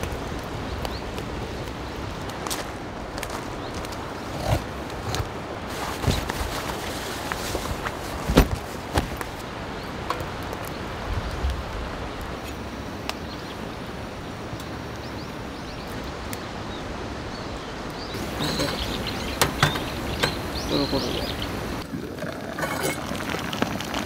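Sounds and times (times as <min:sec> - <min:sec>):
outdoor background noise: 0:00.0 - 0:24.0
birds chirping: 0:00.2 - 0:06.8, 0:13.0 - 0:21.8.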